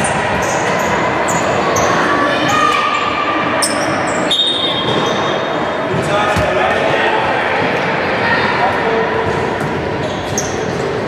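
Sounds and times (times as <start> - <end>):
players' voices: 5.5 - 9.9
basketball bouncing: 6.3 - 7.0.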